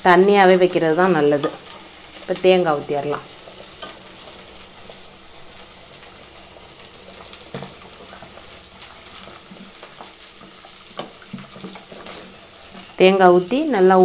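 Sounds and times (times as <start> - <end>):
gravy simmering and bubbling: 0.4 - 13.4
ladle stirring: 3.2 - 13.1.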